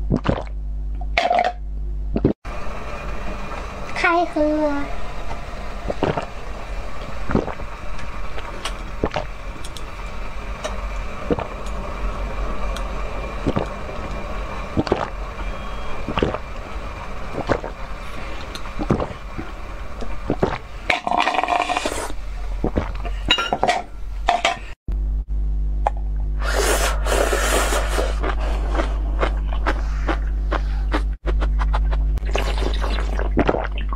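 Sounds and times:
slurping liquid: 0.1 - 0.5, 5.9 - 6.3, 7.2 - 7.7, 8.3 - 9.3, 11.2 - 11.5, 14.8 - 16.4, 17.3 - 19.2, 20.0 - 23.1, 26.4 - 33.9.

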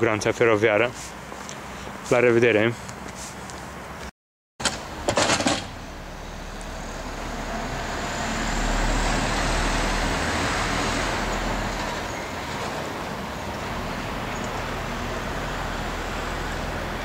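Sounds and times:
distant vehicle rumble: 4.6 - 17.0.

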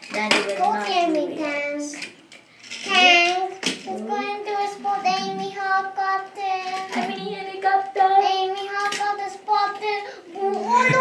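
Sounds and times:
child singing wordlessly: 0.0 - 2.2, 2.8 - 11.0.

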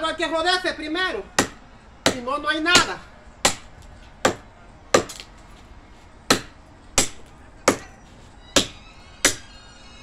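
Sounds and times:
machete chopping wood: 1.4 - 5.3, 6.3 - 7.9, 8.6 - 9.4.

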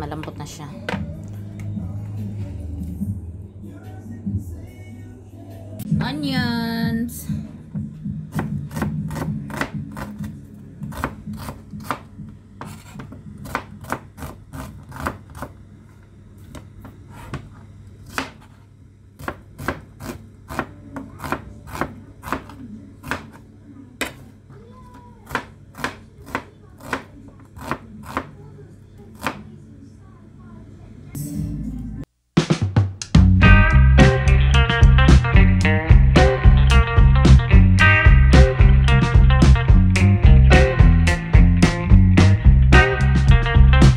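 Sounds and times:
knife chopping on cutting board: 8.3 - 10.3, 10.9 - 15.5, 18.1 - 18.6, 19.2 - 23.4, 25.3 - 28.3.

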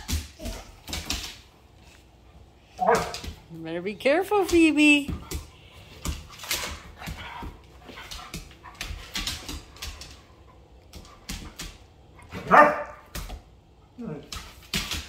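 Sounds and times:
dog claws clicking on wooden floor: 0.0 - 1.5, 4.4 - 13.5, 14.2 - 15.0
dog barking: 2.8 - 3.2, 12.3 - 13.1.

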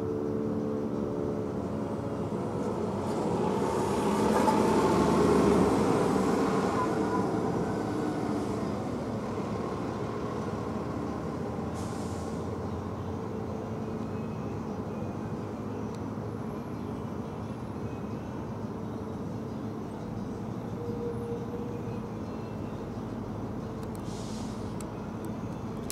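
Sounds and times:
passing vehicle rushing: 1.8 - 12.9.

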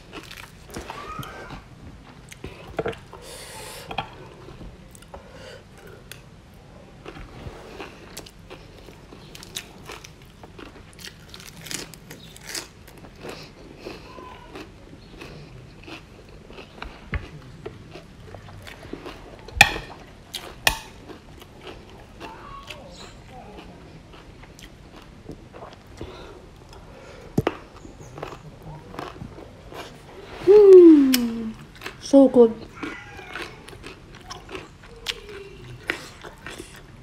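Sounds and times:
person chewing crunchy food: 0.0 - 30.3, 31.2 - 32.0, 32.6 - 37.0
wet mouth sounds: 29.0 - 32.0.

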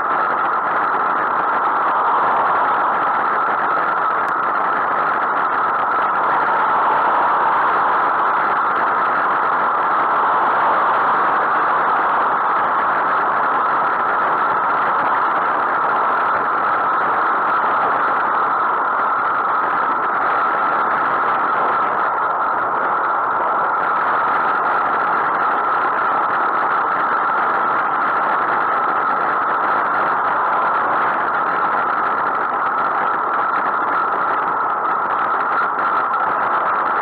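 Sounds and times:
road noise: 0.0 - 17.5
wind noise on microphone: 0.0 - 37.0.

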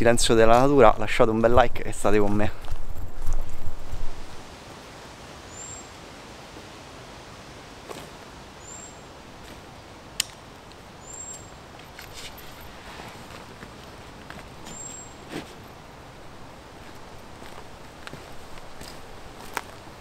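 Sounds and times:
steady outdoor hiss: 0.0 - 20.0
faint rustles: 2.2 - 4.5, 11.3 - 15.8
bird chirping: 5.5 - 5.9, 8.6 - 9.1, 11.0 - 11.6, 14.6 - 15.2.

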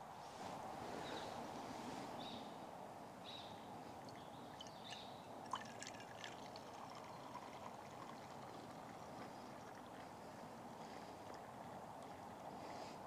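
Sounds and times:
coffee pouring into a mug: 4.0 - 12.5.

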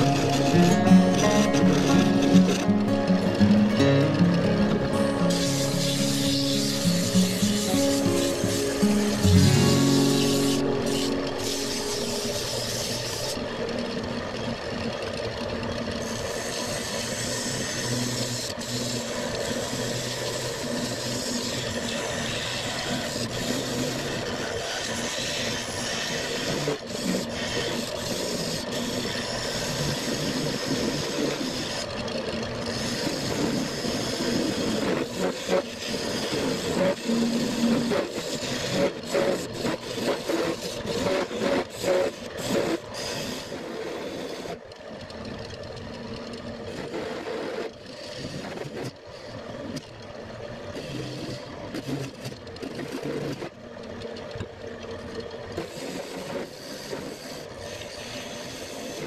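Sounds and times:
chisel scraping spinning wood: 0.0 - 49.9.

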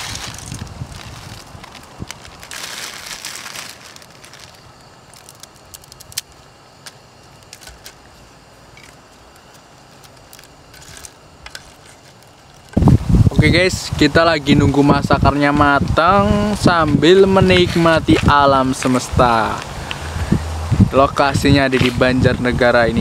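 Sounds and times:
plastic packet crinkling: 0.0 - 8.2, 8.8 - 12.8
dry noodles crackling: 0.0 - 13.1.

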